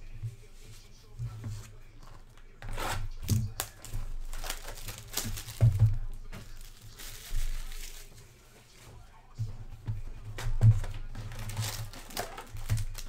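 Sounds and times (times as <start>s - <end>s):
plastic wrap crinkling: 1.9s - 9.0s, 10.3s - 13.0s.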